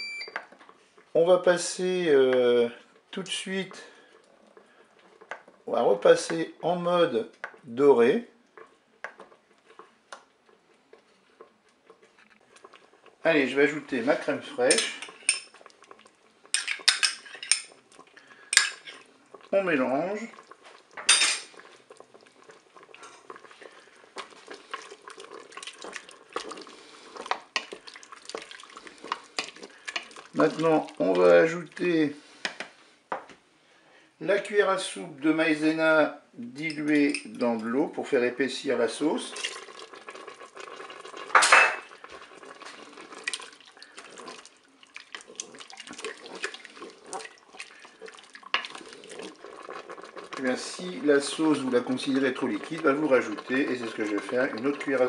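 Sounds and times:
spoon stirring and scraping pot: 0.3 - 7.8, 8.4 - 32.8, 36.5 - 37.8, 38.7 - 55.0
liquid sloshing: 20.2 - 31.2, 39.2 - 55.0.

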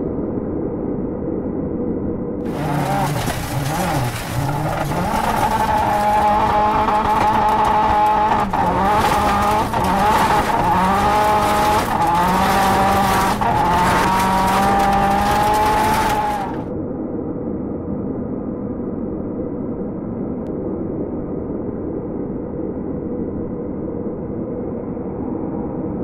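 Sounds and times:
rally car engine at high revs: 2.4 - 16.7
tyres sliding on loose dirt: 2.4 - 16.7.

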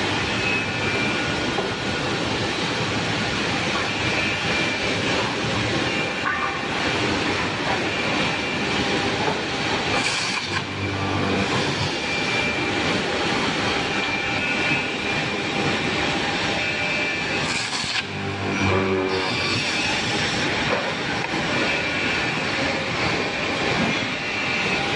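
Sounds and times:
low hum: 10.6 - 11.9, 18.0 - 19.5.

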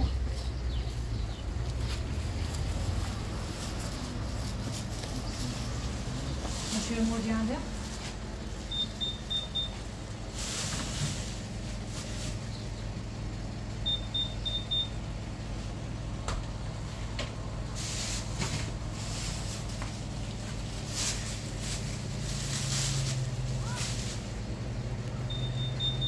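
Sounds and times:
steady low hum: 0.0 - 26.0
plastic bag rustling: 0.2 - 8.7, 10.1 - 12.5, 17.8 - 24.4
high-pitched electronic beeps: 25.3 - 26.0.

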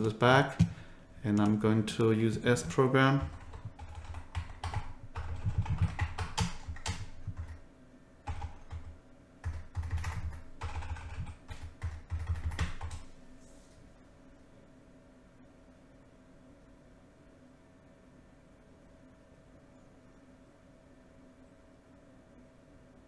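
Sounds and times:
typing on a computer keyboard: 2.6 - 7.6, 8.2 - 13.1.

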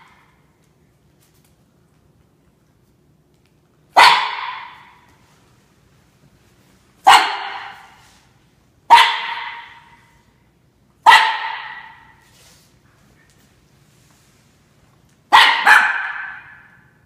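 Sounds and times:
dog barking with echo: 4.0 - 5.0, 7.0 - 8.0, 8.9 - 10.1, 11.0 - 12.2, 15.3 - 16.9.

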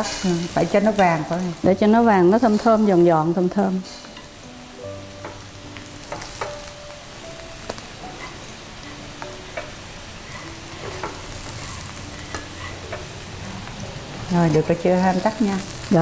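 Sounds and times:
garlic sizzling in oil: 0.0 - 16.0
chopsticks clicking against pans: 12.3 - 13.1.

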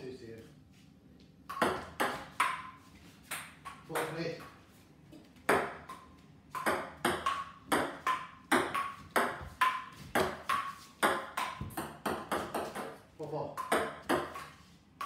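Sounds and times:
ball bouncing on wooden table: 5.4 - 13.0.

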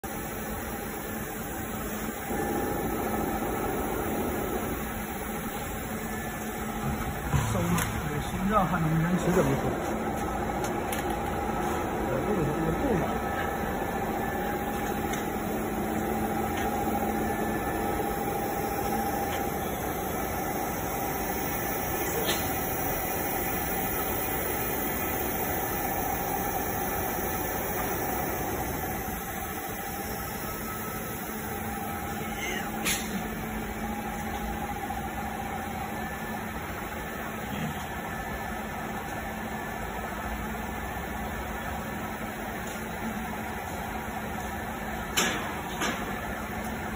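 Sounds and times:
welding machine running: 0.1 - 45.1.

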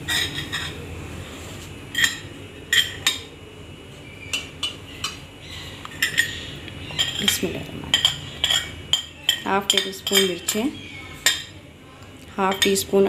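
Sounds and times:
metal spoon clinking on ceramic: 7.0 - 11.5, 12.5 - 12.8.

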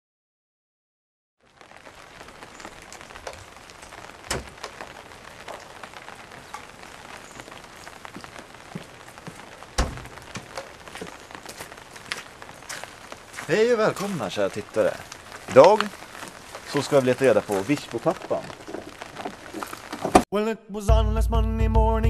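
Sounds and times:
light rain pattering: 1.4 - 20.3
water drips ticking: 1.6 - 20.2
footstep on concrete steps: 8.1 - 17.7
heavy thump: 9.8 - 10.5.

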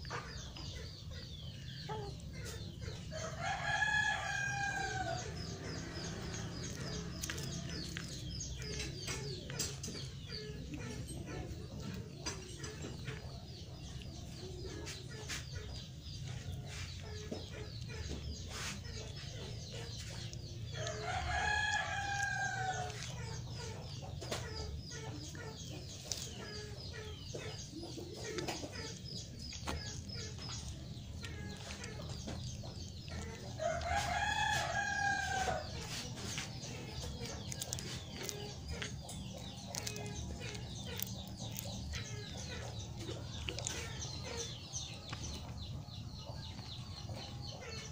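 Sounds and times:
cat chewing wet crunches: 28.2 - 44.5.

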